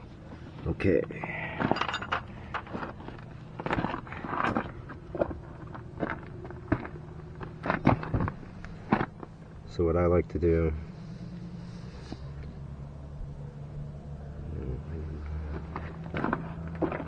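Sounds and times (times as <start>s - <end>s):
steady low hum: 0.0s - 17.0s
tools and parts clinking: 1.6s - 4.7s.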